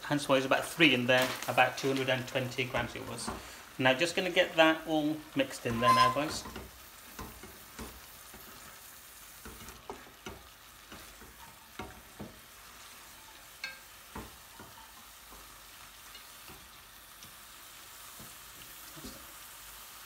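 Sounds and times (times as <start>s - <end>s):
meat and onions sizzling in pan: 0.0s - 20.0s
spatula scraping pan: 5.6s - 16.8s.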